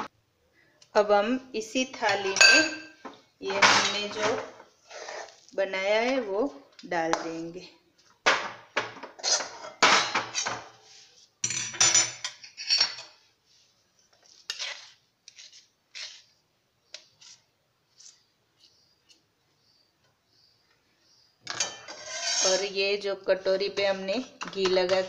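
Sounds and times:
metal spoon scraping a pan: 2.0 - 2.9, 3.5 - 5.5, 9.1 - 11.0, 14.2 - 18.2, 21.5 - 25.0.

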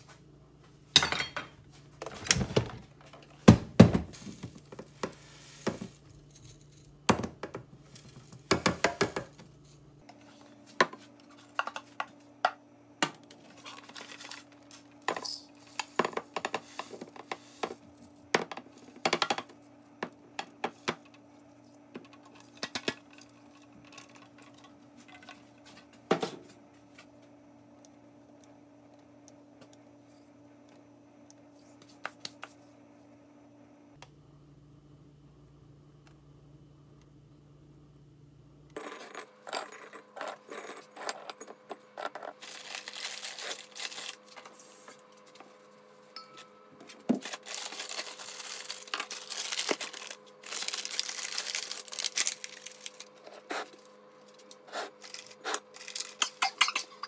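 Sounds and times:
faint steady hum: 0.0 - 57.0.

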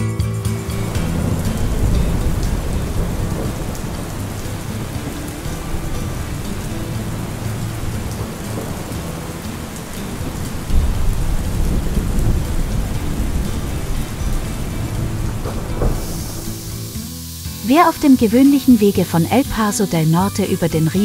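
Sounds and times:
steady rain: 0.5 - 21.0
rolling thunder: 0.8 - 17.1.

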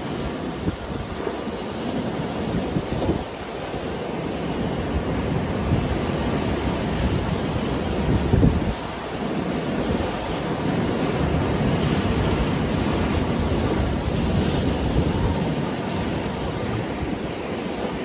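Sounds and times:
surf washing on rocky shore: 0.0 - 18.0.

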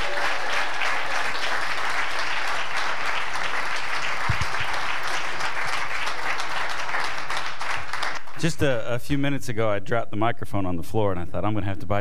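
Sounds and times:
congregation applauding: 0.0 - 8.7.

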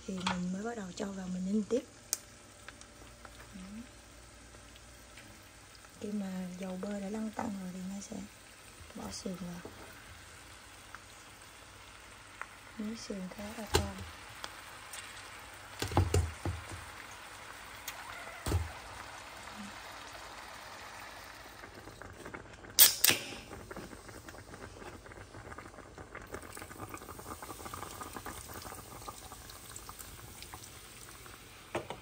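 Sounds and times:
meat bubbling in butter: 0.9 - 31.9
beer pouring: 14.0 - 32.0
dull knocks in pan: 15.8 - 16.8
loud sharp click: 22.8 - 23.4.

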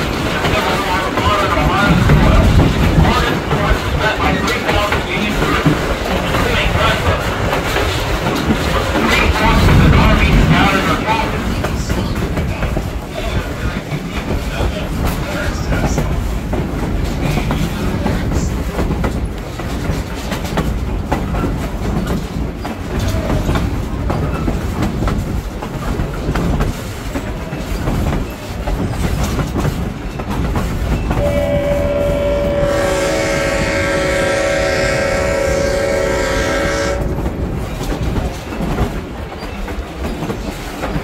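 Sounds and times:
train wheels clickety-clack: 0.0 - 41.0
locomotive horn chord: 31.2 - 37.2.

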